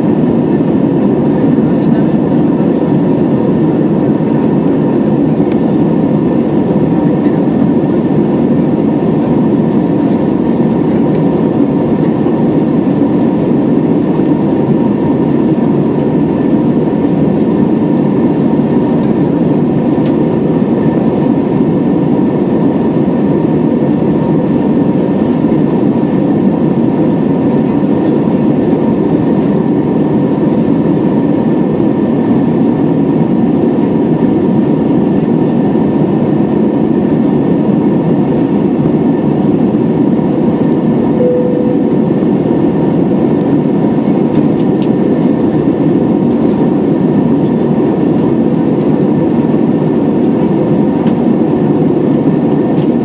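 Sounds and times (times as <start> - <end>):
airflow rushing in aircraft cabin: 0.0 - 53.0
jet engines droning: 0.0 - 53.0
faint steady whine: 34.3 - 53.0.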